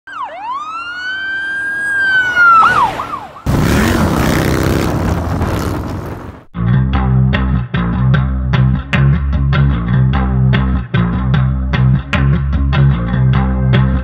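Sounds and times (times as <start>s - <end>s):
siren wailing and yelping: 0.1s - 3.5s
motorcycle engine at speed: 3.5s - 6.5s
wind rush: 3.5s - 6.6s.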